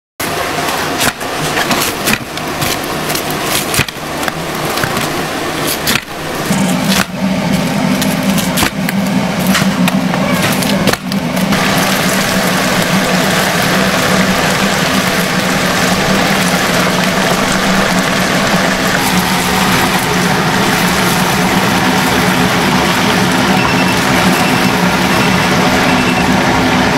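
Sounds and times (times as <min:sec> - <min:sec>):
chicken deep-frying in oil: 0:00.2 - 0:26.9
steady low hum: 0:00.2 - 0:26.9
knife chopping fried chicken: 0:01.0 - 0:05.1.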